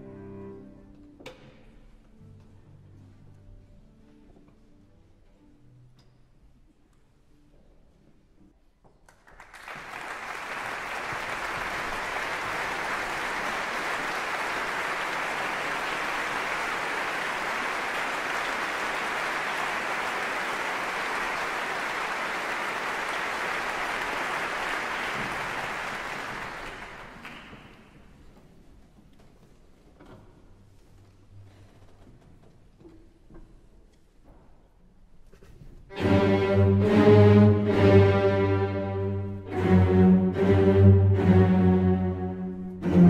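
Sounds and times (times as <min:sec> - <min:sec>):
audience applauding: 0:09.1 - 0:28.0.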